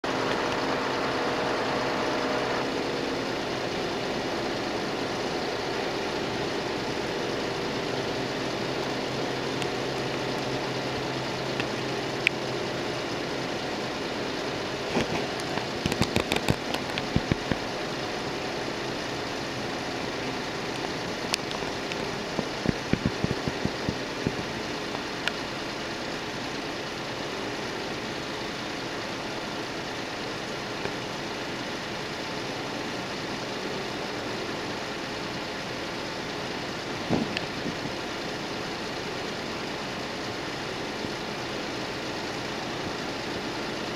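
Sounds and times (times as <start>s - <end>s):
engine running with low hum: 0.0s - 43.9s
sharp clicks: 14.9s - 17.6s.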